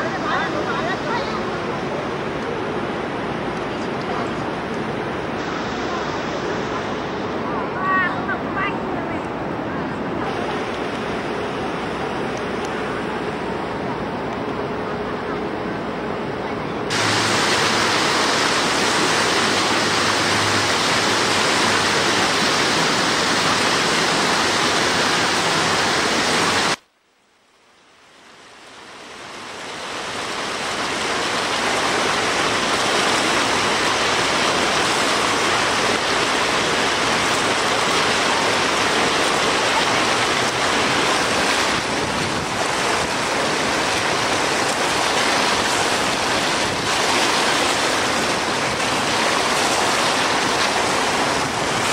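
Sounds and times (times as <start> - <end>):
loud rushing noise: 16.9 - 26.8, 33.4 - 51.9.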